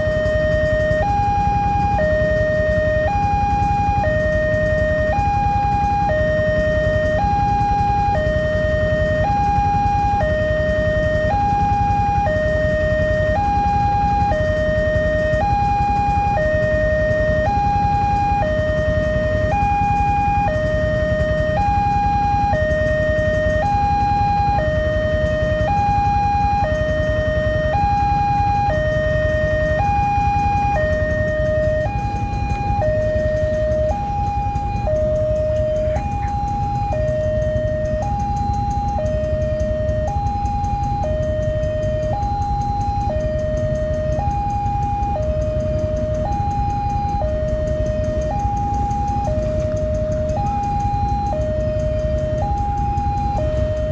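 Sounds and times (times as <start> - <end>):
two-tone crossing warning alarm: 0.0 - 53.9.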